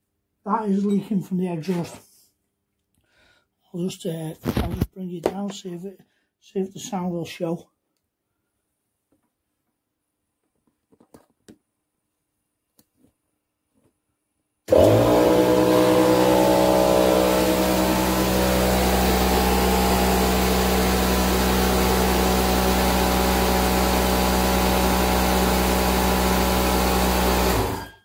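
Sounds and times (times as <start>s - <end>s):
air compressor running: 14.7s - 28.0s.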